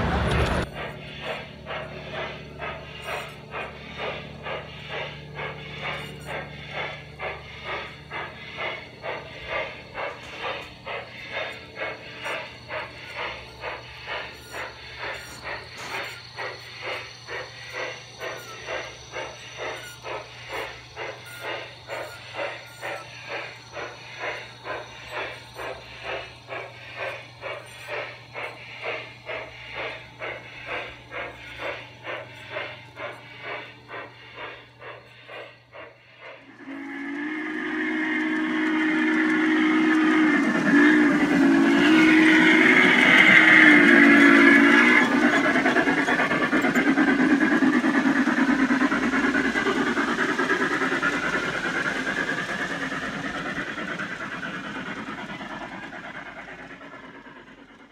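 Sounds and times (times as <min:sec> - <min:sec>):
steam hissing: 0:00.0 - 0:57.9
steam locomotive chuffing: 0:00.0 - 0:57.9
steam whistle: 0:36.4 - 0:46.7.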